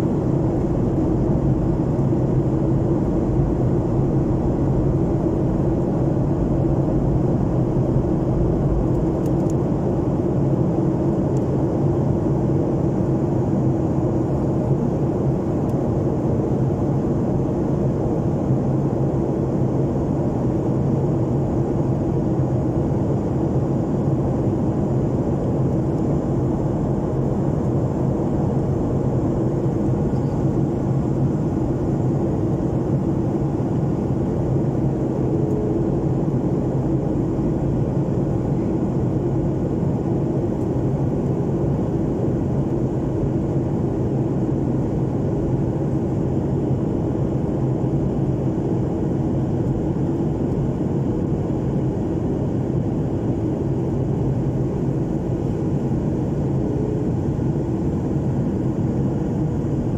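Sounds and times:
faint steady hum: 0.0 - 59.9
jet engine and airflow roar: 0.0 - 59.9.

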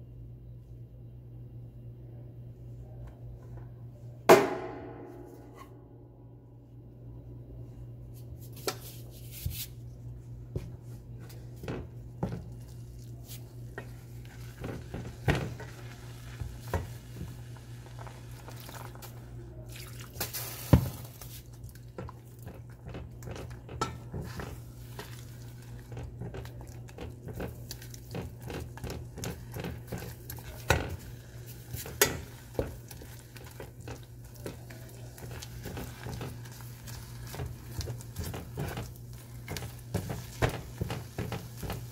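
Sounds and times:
wooden spatula scraping saucepan: 22.0 - 41.9.

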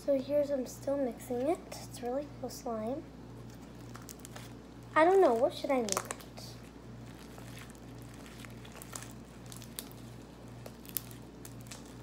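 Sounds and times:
slime squishing: 3.4 - 12.0.

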